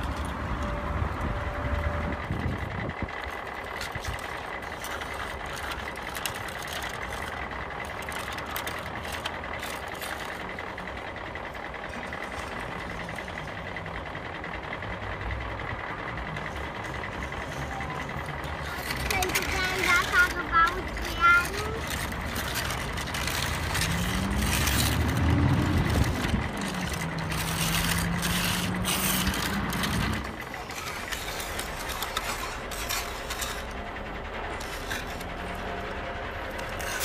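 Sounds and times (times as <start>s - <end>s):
engine-like drone with whine: 0.0s - 37.0s
plastic toys clattering on concrete: 2.4s - 13.8s, 16.2s - 37.0s.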